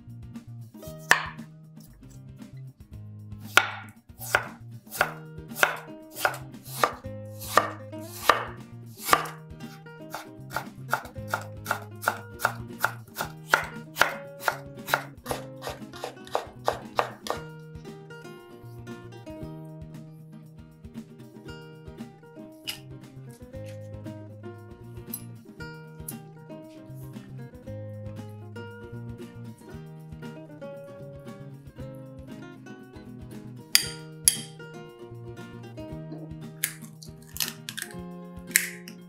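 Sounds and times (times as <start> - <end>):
knife slicing potato: 0.8 - 2.2, 3.4 - 17.5, 33.7 - 34.5, 36.6 - 39.0
knife knocking on wooden board: 1.1 - 1.4, 3.5 - 4.5, 15.3 - 17.4.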